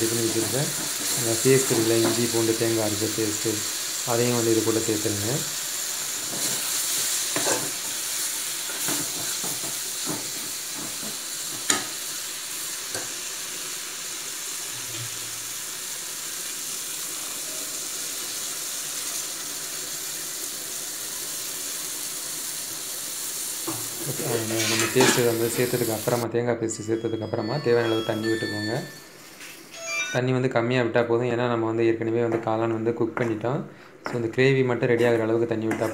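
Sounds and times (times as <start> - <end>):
food sizzling in a metal pan: 0.0 - 26.2, 27.5 - 30.2
steel spoon scraping a pan: 24.5 - 25.3.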